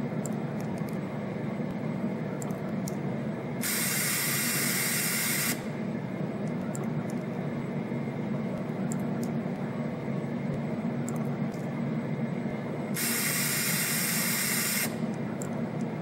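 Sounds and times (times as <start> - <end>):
spring coiling machine humming: 0.0 - 16.0
loud hiss: 3.6 - 5.7, 13.0 - 15.0.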